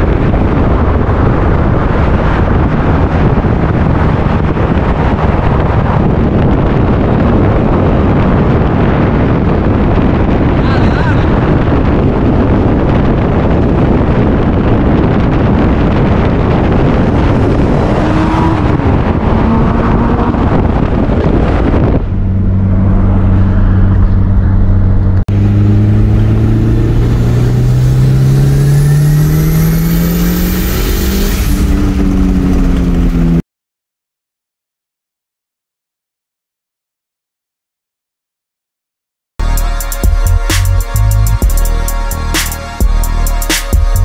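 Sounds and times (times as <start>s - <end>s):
wind noise: 0.0s - 33.4s
car engine accelerating hard: 0.1s - 33.4s.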